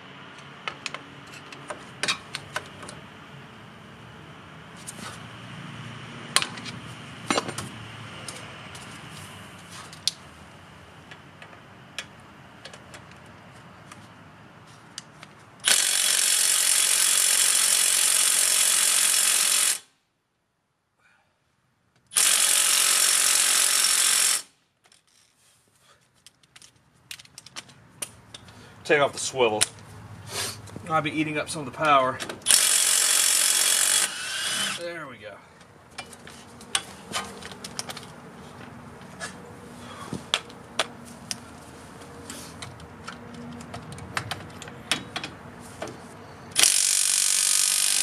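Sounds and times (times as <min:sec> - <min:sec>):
tools clicking and clattering: 0:06.4 - 0:08.9, 0:26.1 - 0:28.6, 0:35.9 - 0:39.4, 0:42.1 - 0:47.0
cordless impact wrench running: 0:15.6 - 0:19.9, 0:22.1 - 0:24.5, 0:32.4 - 0:34.8, 0:46.6 - 0:48.0.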